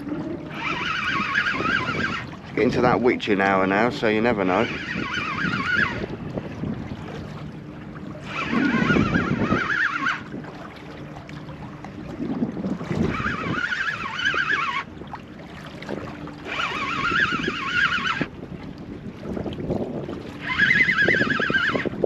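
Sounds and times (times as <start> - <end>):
warbling tone: 0.0 - 2.4, 3.6 - 6.4, 8.2 - 10.4, 12.7 - 15.0, 16.4 - 18.3, 20.4 - 22.0
water around a boat: 0.0 - 22.0
wind: 0.0 - 22.0.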